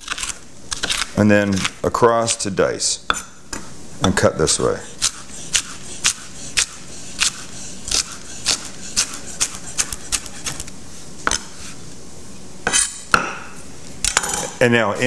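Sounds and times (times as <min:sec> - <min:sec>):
knife chopping on wooden board: 0:05.0 - 0:10.7.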